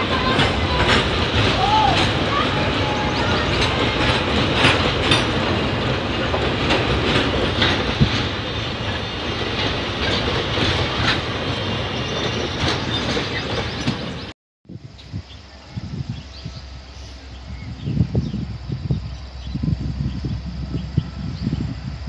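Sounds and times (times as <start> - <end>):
train wheels clacking over rail joints: 0.0 - 14.3.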